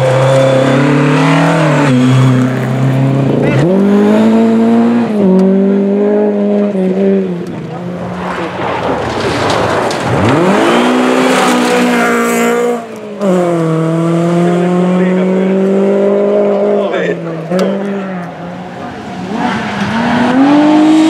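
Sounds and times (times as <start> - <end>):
car accelerating hard: 0.0 - 21.0
rally car engine at full throttle: 0.0 - 21.0.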